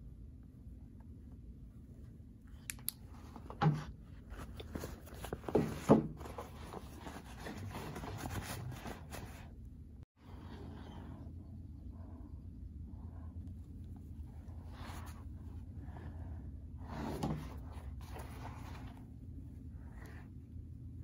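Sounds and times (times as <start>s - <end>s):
handbag fabric rustling: 4.2s - 9.5s.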